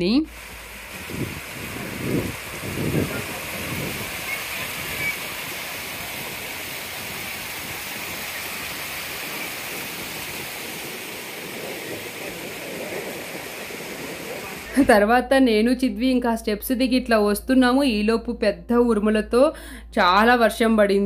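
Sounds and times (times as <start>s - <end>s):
waterfall hissing: 0.3s - 14.9s.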